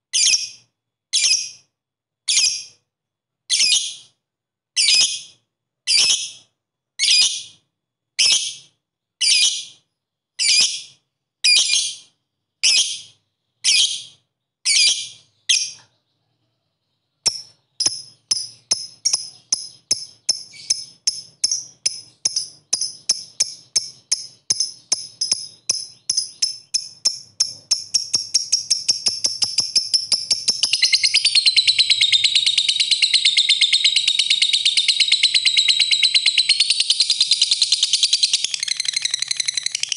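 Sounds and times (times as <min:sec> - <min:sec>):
lovebird chirps: 0:00.1 - 0:01.7, 0:02.3 - 0:02.8, 0:04.8 - 0:07.6, 0:08.2 - 0:39.9
lovebird ticking and trill: 0:00.1 - 0:01.7, 0:10.4 - 0:39.9.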